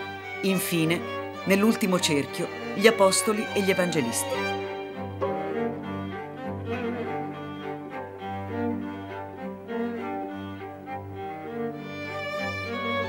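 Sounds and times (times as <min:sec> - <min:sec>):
bowed strings slow held notes: 0:00.0 - 0:13.0.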